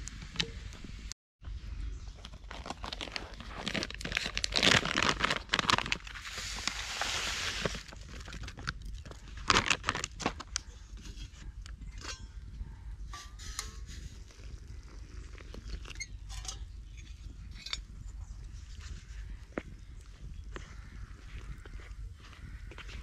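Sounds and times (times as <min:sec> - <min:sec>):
plastic bag crinkling: 0:02.3 - 0:10.6.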